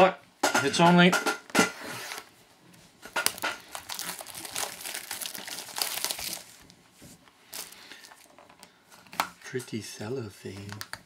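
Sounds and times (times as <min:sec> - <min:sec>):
shrink wrap tearing and crinkling: 0:03.1 - 0:06.8, 0:07.5 - 0:08.4.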